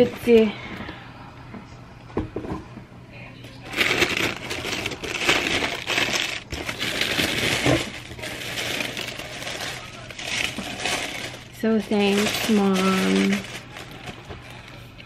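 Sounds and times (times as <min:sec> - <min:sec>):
tissue paper crinkling: 0:03.6 - 0:15.0.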